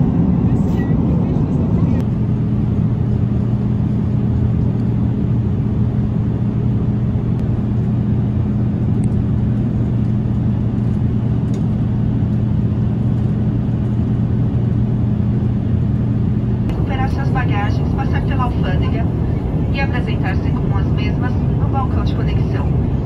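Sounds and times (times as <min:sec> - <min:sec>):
airliner cabin drone: 0:00.0 - 0:23.0.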